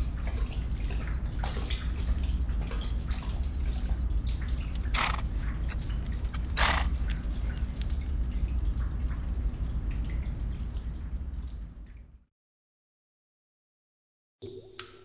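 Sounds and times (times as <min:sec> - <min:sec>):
water splashes: 0:00.0 - 0:12.0
water dripping into pool: 0:00.0 - 0:12.2, 0:14.4 - 0:15.0
steady low rumble: 0:02.2 - 0:11.9.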